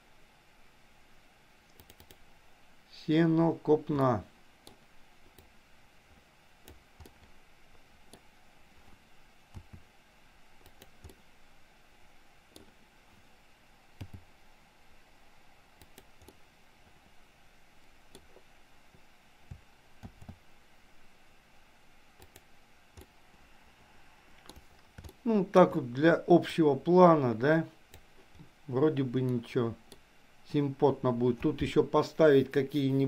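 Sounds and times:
low room hiss: 0.0s - 33.0s
mouse and keyboard clicks: 1.7s - 2.2s, 24.4s - 25.2s.

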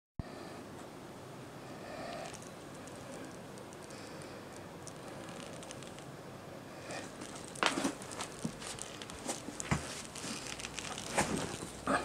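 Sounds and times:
rustling of camera straps: 7.2s - 11.8s.

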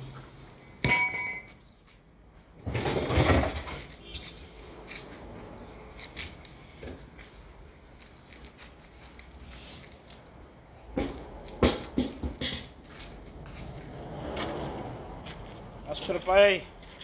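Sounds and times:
metal clank: 0.8s - 1.6s, 11.6s - 12.8s.

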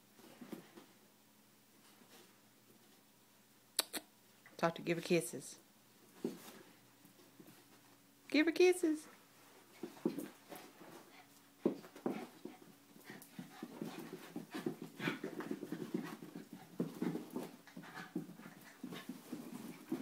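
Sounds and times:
dogs play-wrestling: 0.1s - 1.0s, 6.1s - 8.0s, 9.2s - 20.0s.

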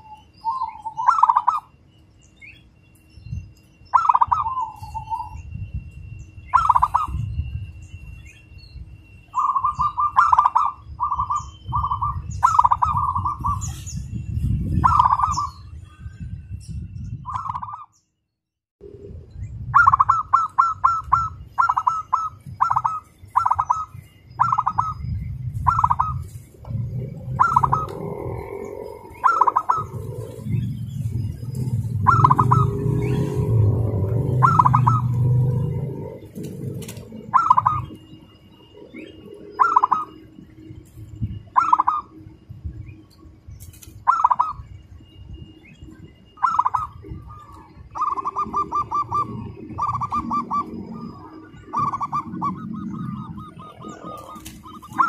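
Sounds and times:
dove cooing: 0.0s - 1.7s, 3.9s - 5.4s, 6.5s - 7.3s, 9.4s - 13.9s, 14.8s - 15.6s, 19.7s - 40.6s, 41.5s - 42.2s, 44.0s - 44.7s, 46.4s - 55.0s.

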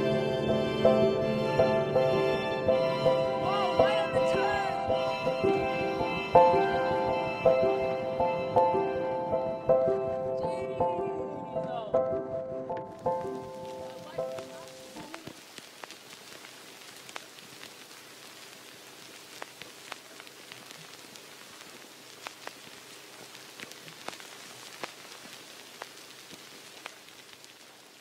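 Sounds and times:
faint hiss: 0.0s - 10.7s, 12.9s - 28.0s
film crackle clicks and pops: 12.7s - 28.0s.

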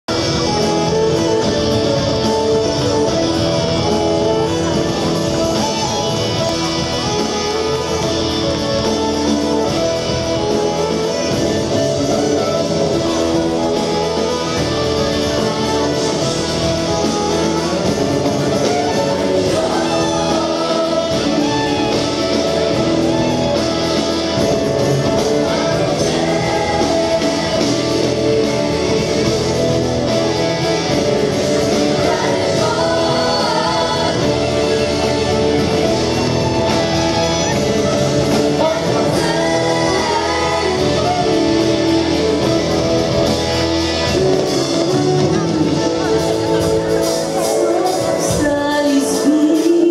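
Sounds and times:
acoustic guitar: 0.0s - 49.9s
band playing: 0.0s - 49.9s
choir singing: 0.2s - 49.9s.

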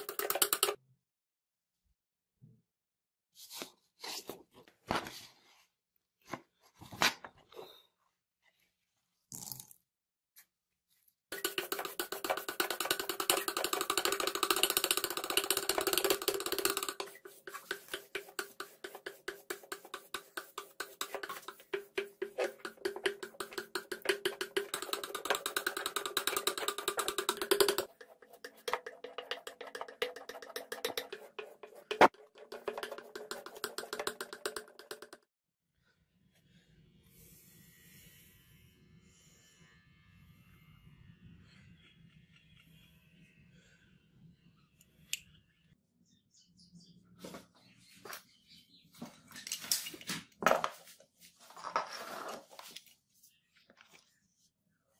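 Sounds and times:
knife blade scraping on sandpaper: 15.8s - 34.5s.

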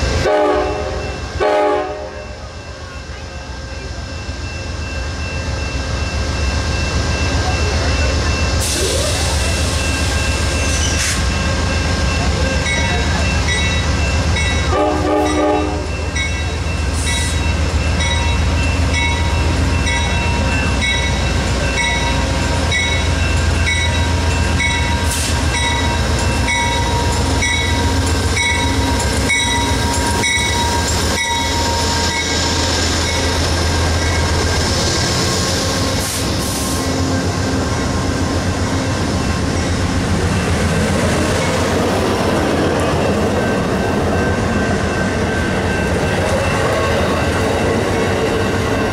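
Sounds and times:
crossing bell dinging: 0.0s - 36.0s, 36.8s - 48.9s
train wheels on rails: 0.0s - 48.9s
train horn blast: 0.2s - 2.3s, 14.7s - 16.0s.

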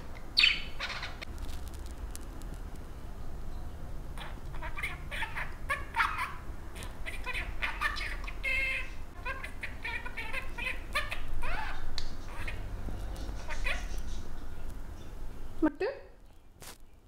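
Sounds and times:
budgerigar chattering and whistling: 0.4s - 1.2s, 4.2s - 12.6s, 13.2s - 14.3s.

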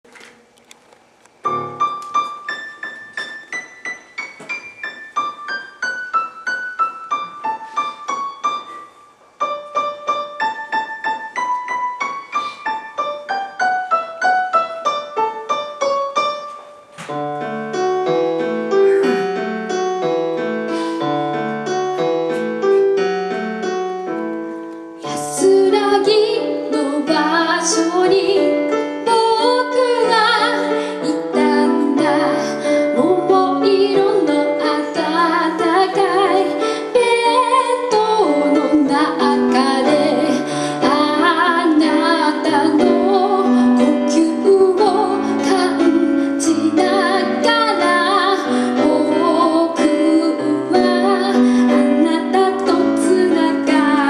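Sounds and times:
digital piano playing: 1.4s - 54.0s
woman singing: 25.0s - 54.0s.

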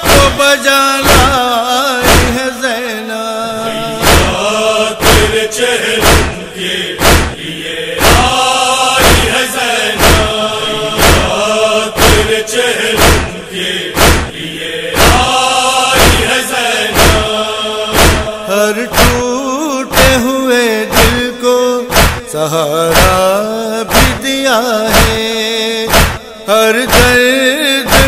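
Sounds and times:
male chorus chanting: 0.0s - 28.0s
chest-beating strikes: 6.0s - 6.4s, 7.0s - 7.4s, 8.0s - 8.3s, 9.0s - 9.4s, 10.0s - 11.4s, 12.0s - 12.4s, 13.0s - 14.4s, 15.0s - 15.4s, 16.0s - 19.2s, 21.9s - 22.3s, 25.9s - 26.2s.

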